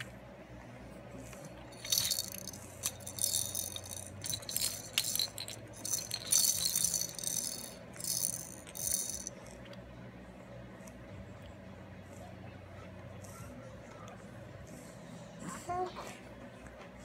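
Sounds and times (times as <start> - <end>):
plastic baby rattle shaking: 1.7 - 9.6.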